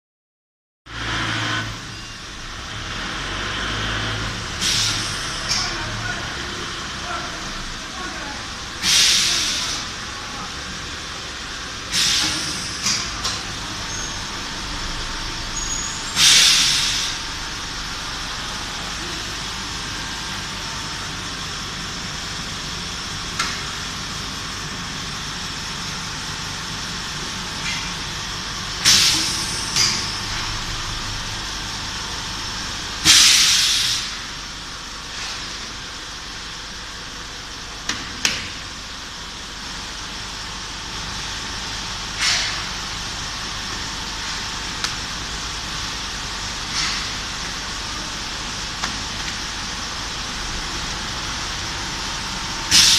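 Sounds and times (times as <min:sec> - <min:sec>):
compressed air hissing: 0:04.6 - 0:05.5, 0:08.8 - 0:09.9, 0:11.9 - 0:13.1, 0:16.1 - 0:17.3, 0:28.8 - 0:30.0, 0:33.0 - 0:34.3, 0:52.7 - 0:52.9.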